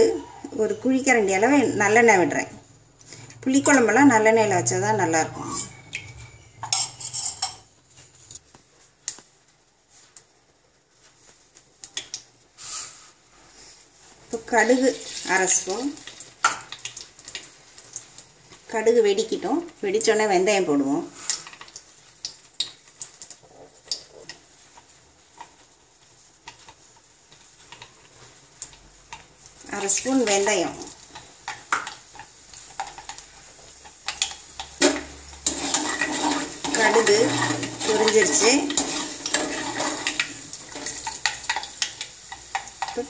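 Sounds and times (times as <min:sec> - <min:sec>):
faint oil sizzle: 0:00.0 - 0:43.0
metal spoon scraping steel cup: 0:05.4 - 0:07.7, 0:34.9 - 0:39.9.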